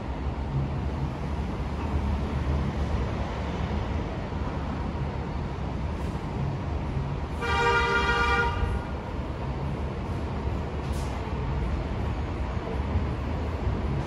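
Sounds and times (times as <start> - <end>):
steady low rumble: 0.0 - 7.4
vehicle horn blast: 7.3 - 8.9.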